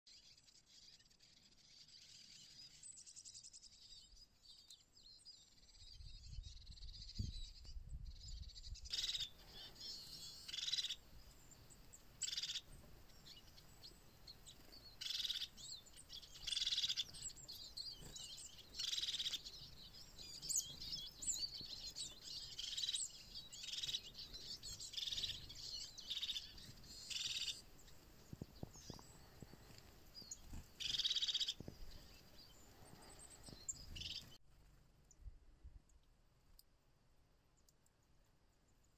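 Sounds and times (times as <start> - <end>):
crested tit trilled calls: 8.1 - 11.0, 12.2 - 13.7, 14.4 - 29.6, 30.2 - 34.4.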